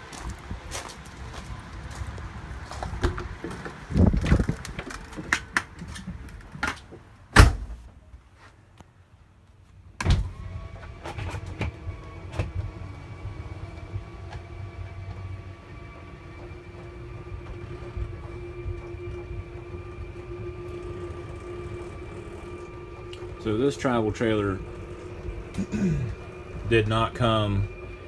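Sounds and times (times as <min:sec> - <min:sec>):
footsteps on gravel: 0:00.0 - 0:04.5
faint steady hum: 0:00.0 - 0:28.0
door bang: 0:07.4 - 0:07.8
thump: 0:07.4 - 0:07.8.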